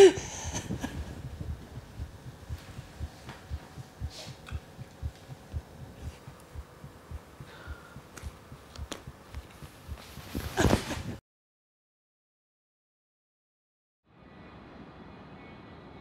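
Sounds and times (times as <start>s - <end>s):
woman sobbing: 0.0s - 1.7s
heartbeat thumps: 0.0s - 11.2s.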